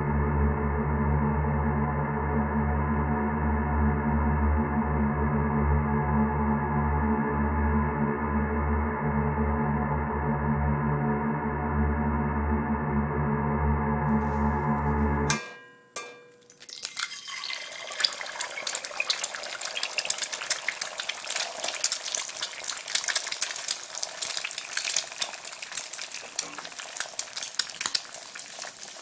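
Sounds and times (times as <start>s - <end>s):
dense crackle of pops: 18.0s - 29.0s.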